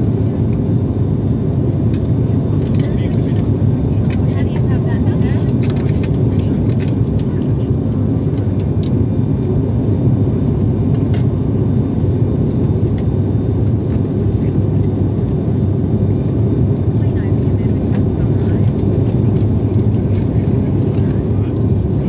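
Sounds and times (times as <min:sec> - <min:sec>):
airliner cabin rumble: 0:00.0 - 0:22.0.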